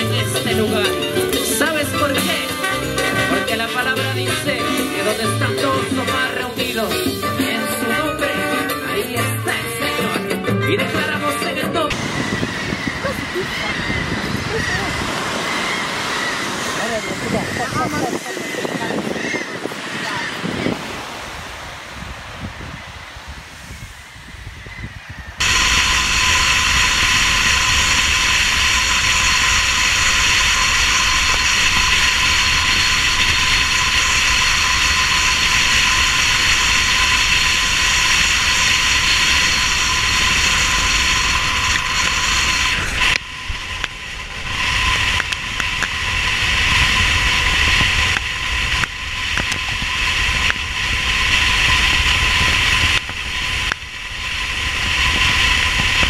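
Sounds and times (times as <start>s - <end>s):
constant whine: 0.0s - 56.0s
surf: 0.0s - 56.0s
wind and road noise: 11.9s - 56.0s.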